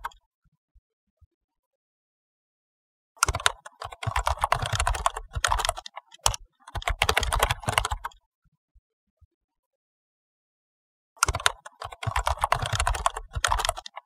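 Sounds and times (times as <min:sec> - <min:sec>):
rapid keyboard typing: 0:03.2 - 0:08.1, 0:11.2 - 0:14.0.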